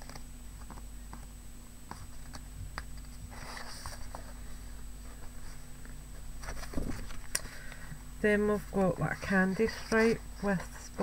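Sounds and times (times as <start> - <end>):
steady low hum: 0.0 - 11.0
paper rustling: 2.0 - 7.7.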